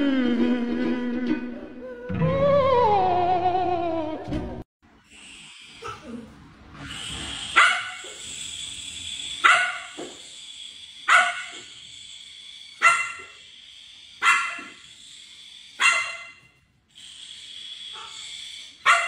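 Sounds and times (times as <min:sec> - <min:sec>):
puppy barking: 0:07.6 - 0:08.0, 0:09.4 - 0:09.9, 0:11.1 - 0:11.6, 0:12.8 - 0:13.3, 0:14.2 - 0:14.8, 0:15.8 - 0:16.4.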